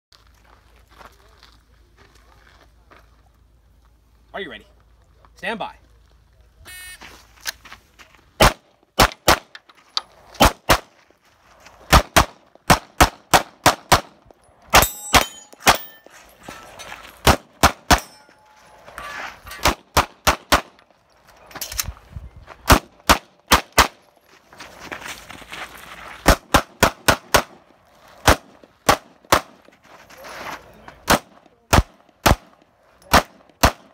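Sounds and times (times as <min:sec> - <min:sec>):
shot timer beep: 0:06.7 - 0:07.0
pistol shots: 0:08.4 - 0:09.6, 0:10.4 - 0:10.9, 0:11.9 - 0:15.9, 0:17.2 - 0:18.3, 0:19.6 - 0:20.8, 0:22.7 - 0:24.0, 0:26.3 - 0:27.6, 0:28.2 - 0:29.6, 0:31.0 - 0:33.9
steel targets ringing: 0:14.7 - 0:17.2, 0:17.8 - 0:19.7.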